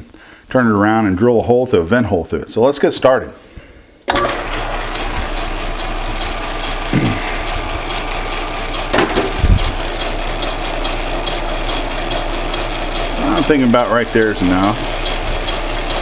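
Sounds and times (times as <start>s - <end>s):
metal lathe running: 4.1s - 16.0s.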